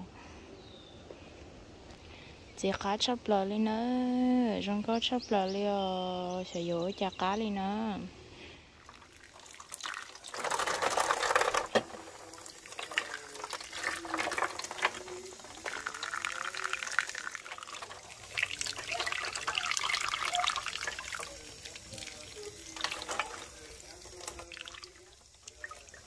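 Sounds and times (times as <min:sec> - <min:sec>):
tap water splashing into sink: 0:08.9 - 0:26.0.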